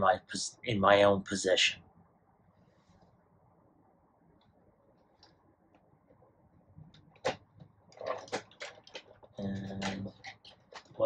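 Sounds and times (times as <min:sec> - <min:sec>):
plastic packaging clicks and rustling: 0:07.2 - 0:11.0.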